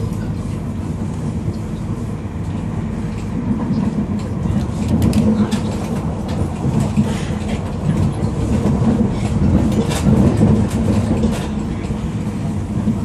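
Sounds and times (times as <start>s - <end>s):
electric train rumbling: 0.0s - 13.0s
train wheels clicking: 2.4s - 13.0s.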